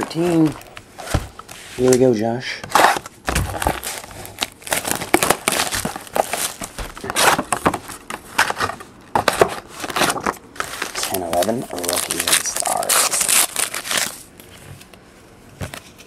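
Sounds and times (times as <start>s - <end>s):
wrapper and cardboard crinkling: 2.7s - 14.5s.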